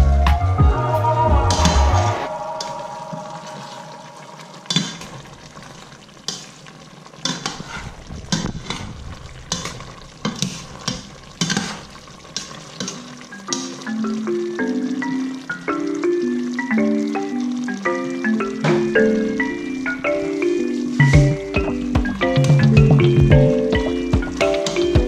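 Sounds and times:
faint sizzle: 0:00.8 - 0:25.0
ladle scraping and clinking a pot: 0:07.2 - 0:13.2.

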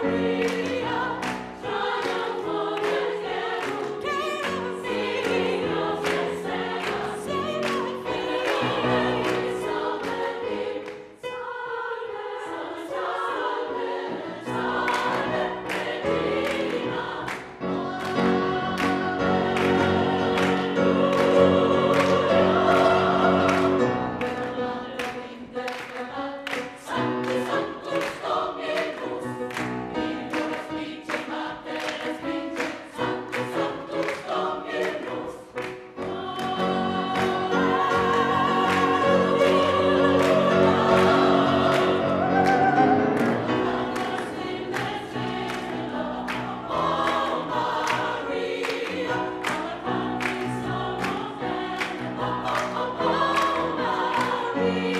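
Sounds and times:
choir singing gospel: 0:00.0 - 0:54.9
handclaps: 0:02.0 - 0:11.1, 0:14.9 - 0:18.2, 0:23.4 - 0:36.5, 0:43.2 - 0:54.5.

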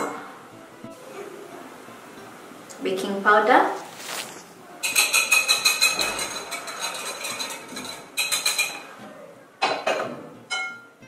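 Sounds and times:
whisk clinking against glass bowl: 0:04.8 - 0:08.9.

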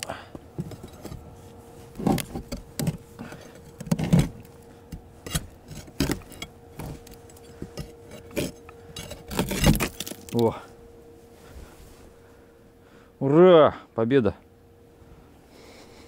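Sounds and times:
ice slabs breaking: 0:08.4 - 0:10.4.

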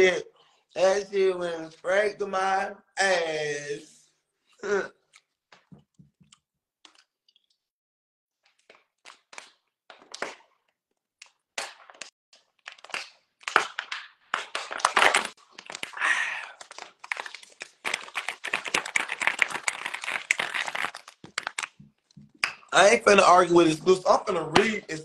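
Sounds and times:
plastic water bottle crinkling: 0:12.7 - 0:22.3.

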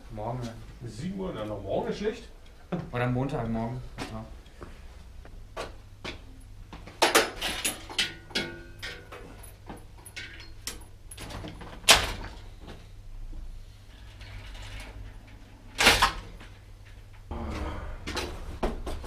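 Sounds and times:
bicycle clattering and knocking: 0:06.8 - 0:12.4.

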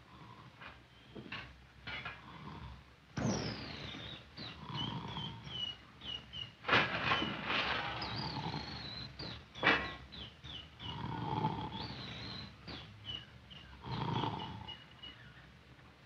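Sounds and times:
man snoring loudly: 0:10.9 - 0:11.8, 0:13.8 - 0:14.7.

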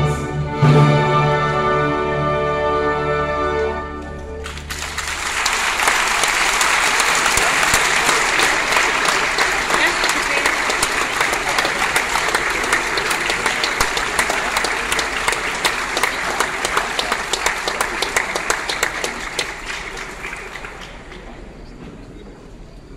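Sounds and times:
audience applauding: 0:04.4 - 0:21.6.

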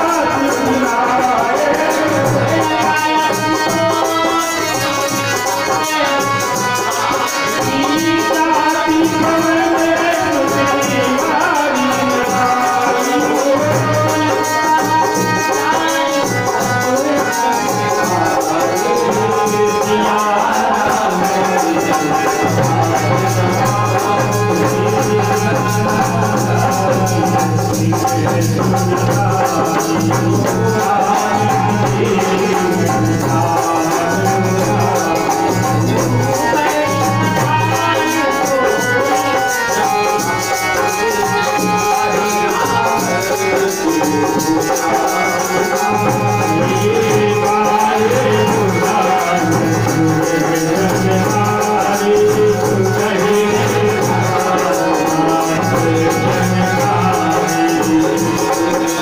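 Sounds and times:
devotional music: 0:00.0 - 0:59.0.

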